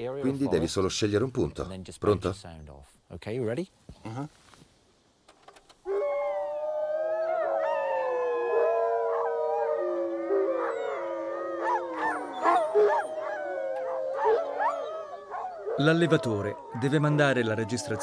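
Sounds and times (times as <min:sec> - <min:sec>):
wolves howling from loudspeaker: 0:05.9 - 0:18.0.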